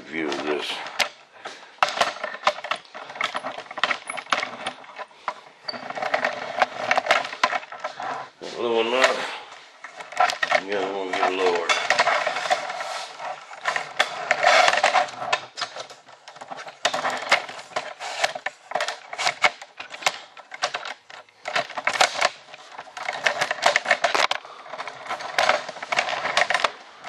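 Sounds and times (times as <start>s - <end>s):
hard objects clicking and rattling: 0.0s - 27.0s.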